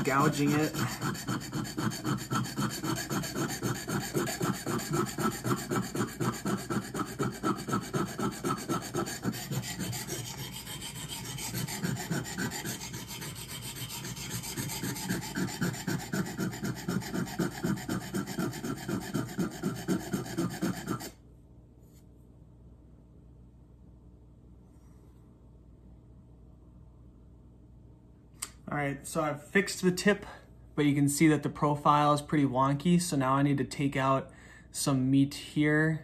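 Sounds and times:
knife grinding on whetstone: 0:00.0 - 0:21.2.

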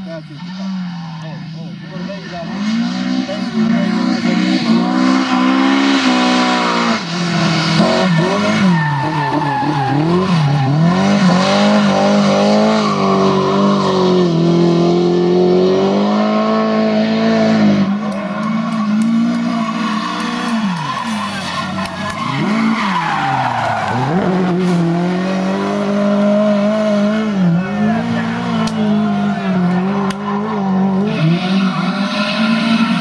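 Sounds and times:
rally car engines revving: 0:00.0 - 0:33.0
tyre squeal: 0:07.8 - 0:11.8, 0:18.0 - 0:24.9.

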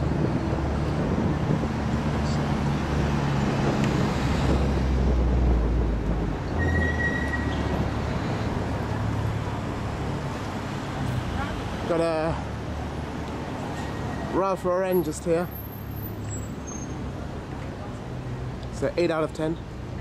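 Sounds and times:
cars passing slowly: 0:00.0 - 0:20.0
brief high squeak: 0:06.6 - 0:07.7, 0:16.2 - 0:17.0.

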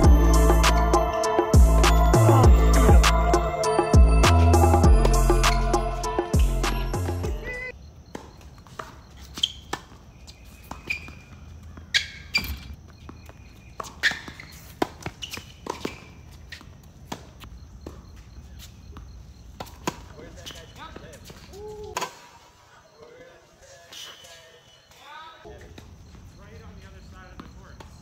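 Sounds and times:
tennis shoes squeaking: 0:00.0 - 0:28.0.

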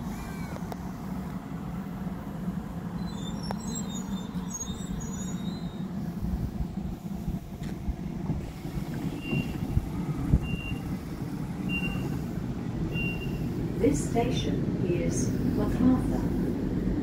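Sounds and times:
brake squeals: 0:00.0 - 0:01.3, 0:02.4 - 0:06.6, 0:08.4 - 0:14.5
train wheels rumbling on rails: 0:00.0 - 0:17.0.

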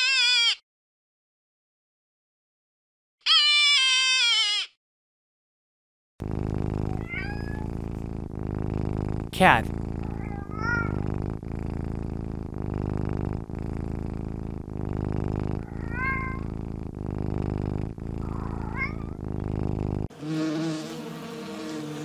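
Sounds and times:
cat meowing: 0:00.0 - 0:00.6, 0:03.3 - 0:04.7, 0:06.9 - 0:07.7, 0:10.0 - 0:11.0, 0:15.6 - 0:16.4, 0:18.2 - 0:19.2
cat purring: 0:06.2 - 0:20.1
honeybee buzzing: 0:06.2 - 0:22.0.

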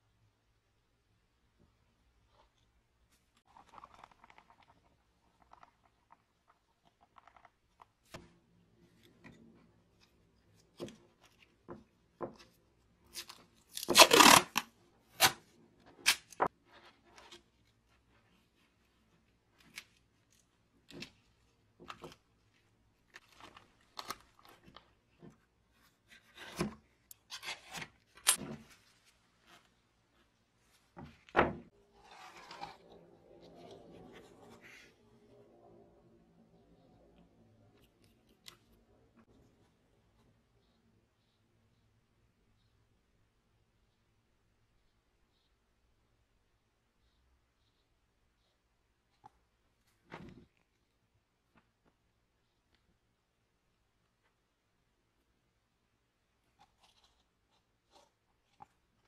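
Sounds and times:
masking tape tearing: 0:13.7 - 0:15.4.

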